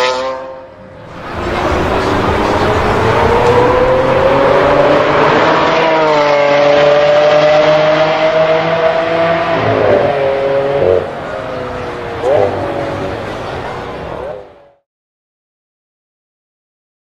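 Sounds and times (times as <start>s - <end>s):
car engine accelerating hard: 0.0s - 14.8s.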